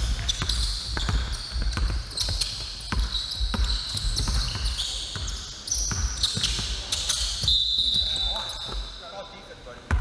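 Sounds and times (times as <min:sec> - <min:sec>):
basketball bouncing: 0:00.0 - 0:07.5
sneakers squeaking on hardwood: 0:00.0 - 0:09.0.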